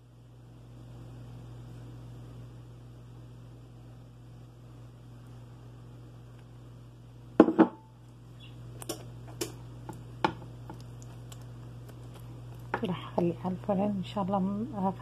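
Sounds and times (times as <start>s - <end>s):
low steady hum: 0.0s - 15.0s
pastry brush knocking on dish: 7.4s - 7.8s.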